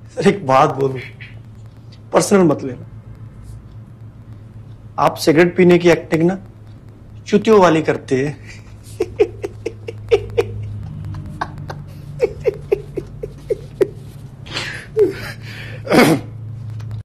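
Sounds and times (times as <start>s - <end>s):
steady low hum: 0.0s - 17.0s
man giggling: 8.3s - 16.2s
breathy laugh: 8.4s - 16.3s.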